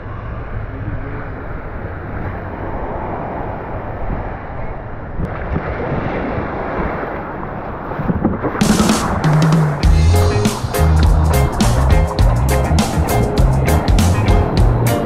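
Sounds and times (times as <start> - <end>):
wind buffeting microphone: 0.0 - 15.0
small waves washing on sand: 2.0 - 9.8.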